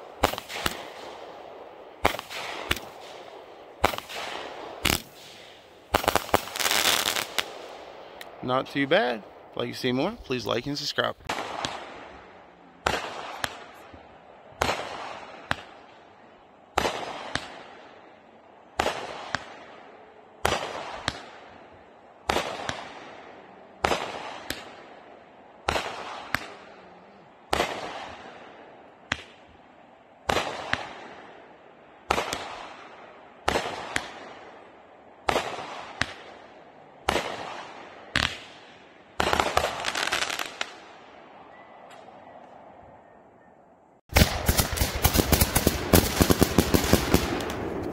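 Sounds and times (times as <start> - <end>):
firework shots launching: 0.0 - 1.3, 2.0 - 8.3, 11.3 - 12.1, 12.8 - 13.8, 20.4 - 21.5, 22.2 - 24.9, 25.6 - 26.7, 30.2 - 31.2, 32.1 - 34.5, 35.2 - 36.4, 37.0 - 40.9, 44.1 - 47.9
firework pops and crackling: 0.2 - 1.1, 2.0 - 3.1, 3.8 - 7.6, 11.3 - 11.9, 12.8 - 13.8, 14.6 - 15.8, 16.8 - 17.6, 20.4 - 21.4, 29.1 - 29.4, 32.1 - 32.7, 33.4 - 34.3, 35.2 - 36.4, 37.0 - 38.6, 39.2 - 40.8, 44.1 - 47.9.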